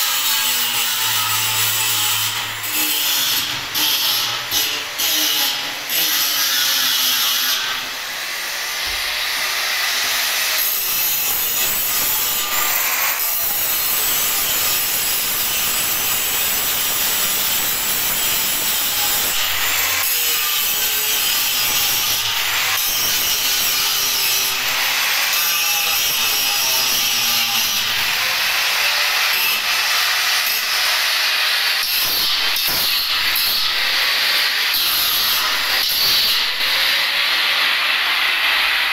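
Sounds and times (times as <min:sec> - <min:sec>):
arc welding hiss: 0:10.6 - 0:19.5.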